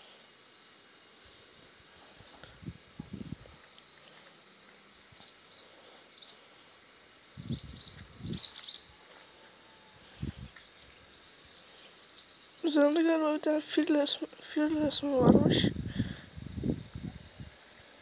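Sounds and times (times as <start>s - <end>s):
small bird chirping: 0.5s - 2.5s, 5.1s - 9.0s, 10.6s - 13.1s.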